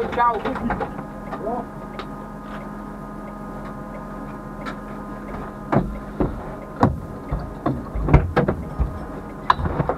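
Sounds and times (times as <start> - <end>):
car engine idling: 0.0 - 9.9
irregular knocks and thuds: 5.3 - 9.9.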